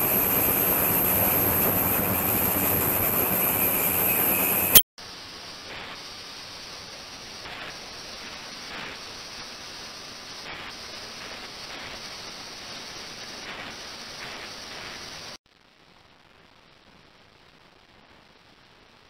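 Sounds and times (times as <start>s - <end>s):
ultrasonic tank hissing: 0.0s - 12.6s.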